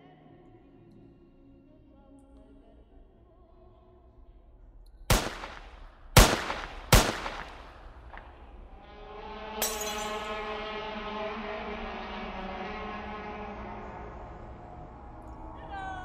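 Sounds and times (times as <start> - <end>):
layered tone drone: 8.0 - 16.0.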